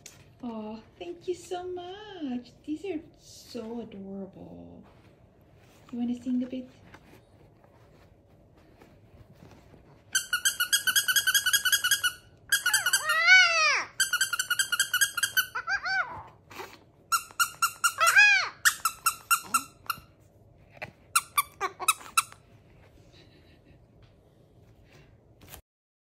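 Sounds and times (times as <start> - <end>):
squeaky toy squeaking: 10.1 - 16.3, 17.1 - 20.1, 21.1 - 22.4.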